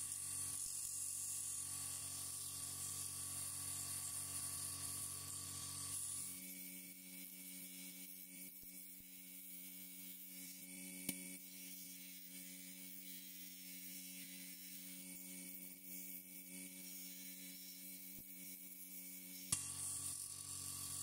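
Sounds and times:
bench grinder motor humming: 0.0 - 7.4, 14.2 - 21.0.

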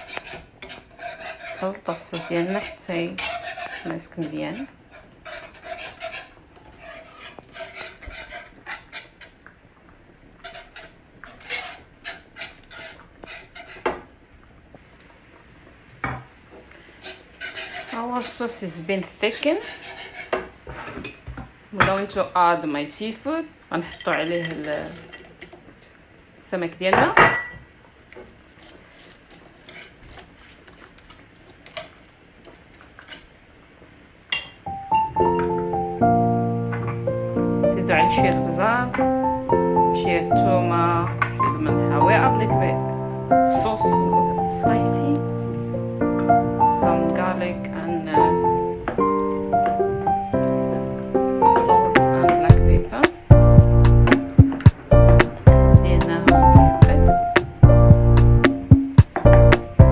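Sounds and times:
whisk clicking against pan: 0.0 - 9.4
wire whisk scraping a pan: 0.0 - 9.4, 10.4 - 14.0, 17.0 - 18.5, 19.2 - 21.2, 28.5 - 33.3.

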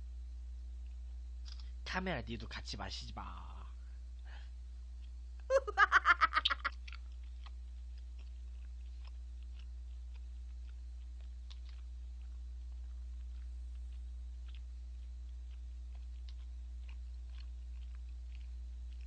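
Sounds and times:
chewing with faint clicks: 0.8 - 1.8, 4.9 - 5.5, 6.5 - 19.0
man laughing: 5.5 - 6.8.

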